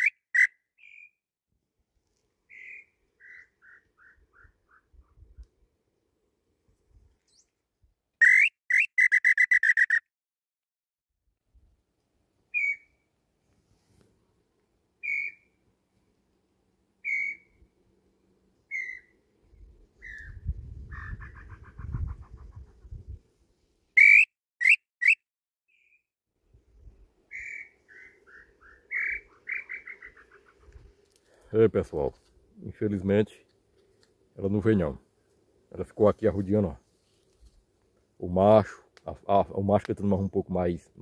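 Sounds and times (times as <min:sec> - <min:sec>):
whistled bird call notes: 0:00.0 - 0:01.2, 0:08.2 - 0:10.0, 0:12.5 - 0:13.0, 0:15.0 - 0:15.5, 0:17.0 - 0:17.5, 0:18.7 - 0:19.1, 0:24.0 - 0:26.0, 0:27.3 - 0:30.5.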